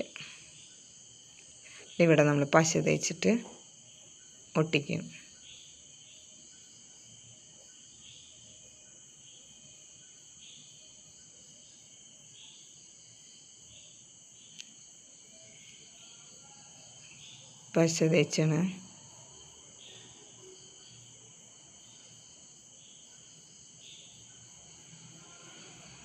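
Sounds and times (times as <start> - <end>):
high-pitched insect chirring: 0.0 - 25.9.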